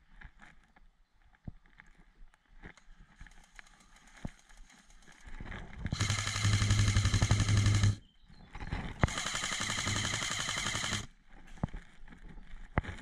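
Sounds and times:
gearbox motor hum: 0:04.1 - 0:08.0, 0:09.0 - 0:11.1
airsoft rifle full-auto bursts: 0:05.9 - 0:08.0, 0:09.0 - 0:11.1.

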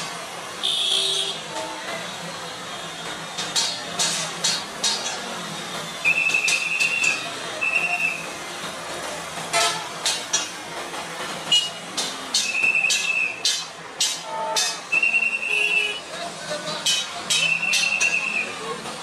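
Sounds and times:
street traffic: 0:00.0 - 0:19.0
sharp clicks and clatter: 0:03.0 - 0:05.5, 0:08.2 - 0:15.0.

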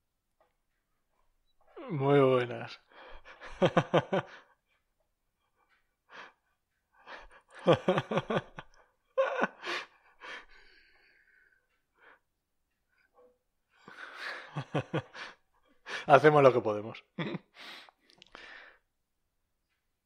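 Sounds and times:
people laughing: 0:03.2 - 0:04.6, 0:07.1 - 0:10.5, 0:13.9 - 0:16.0, 0:17.2 - 0:17.5.

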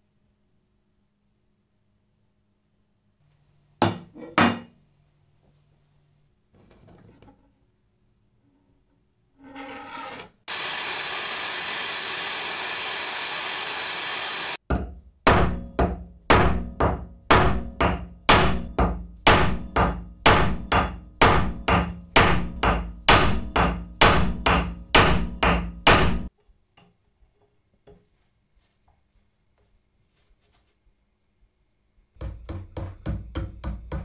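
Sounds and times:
steady hiss: 0:10.5 - 0:14.6
hammer striking steel rod: 0:14.7 - 0:26.3.

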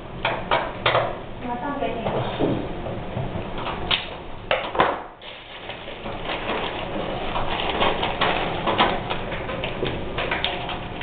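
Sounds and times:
rustling of wires: 0:05.4 - 0:11.0.

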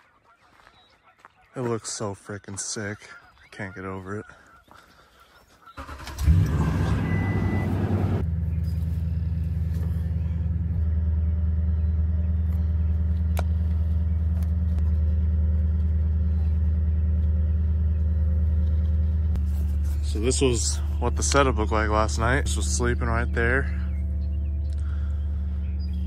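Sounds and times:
pickup engine starting and idling: 0:05.7 - 0:25.9.

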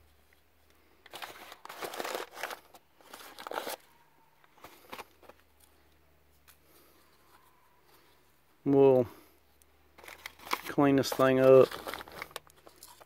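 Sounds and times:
newspaper rustling and crinkling: 0:01.1 - 0:05.6, 0:10.0 - 0:13.0.

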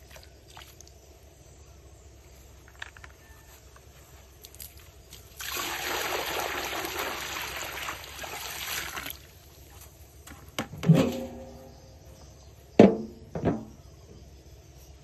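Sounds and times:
water pouring into metal wok: 0:05.4 - 0:09.2.

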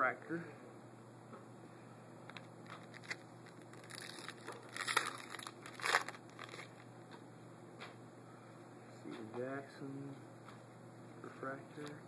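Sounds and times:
foil wrapper crinkling and tearing: 0:02.6 - 0:06.8.

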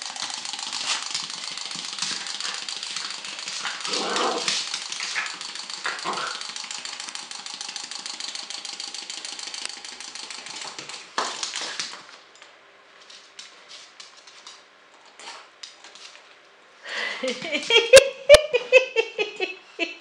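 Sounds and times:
clockwork toy clicking: 0:00.0 - 0:11.9.

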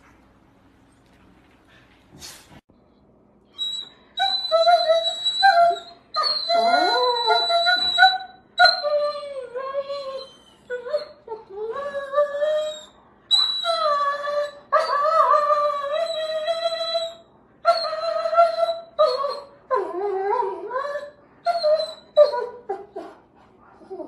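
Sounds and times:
dogs whining howls: 0:03.6 - 0:22.7.

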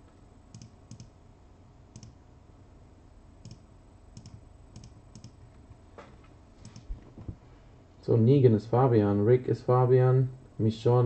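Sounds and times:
faint computer mouse clicks: 0:00.5 - 0:01.1, 0:02.0 - 0:02.2, 0:03.4 - 0:03.6, 0:04.2 - 0:05.4, 0:06.6 - 0:06.9.

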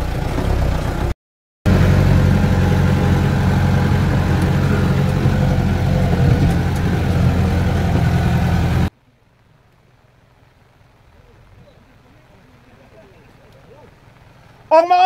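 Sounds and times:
car engine running: 0:00.0 - 0:08.9.

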